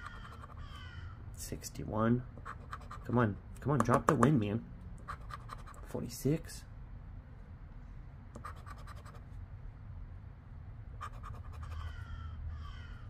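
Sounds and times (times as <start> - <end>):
scratching lottery ticket: 0.0 - 0.6, 2.4 - 3.1, 5.0 - 6.0, 8.4 - 9.2, 11.0 - 11.9.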